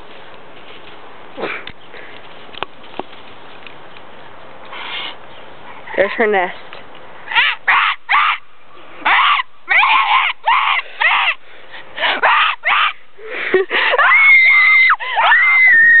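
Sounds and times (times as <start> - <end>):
person squawking shrieks: 7.3 - 8.4, 9.0 - 11.4, 12.1 - 13.0, 14.0 - 16.0.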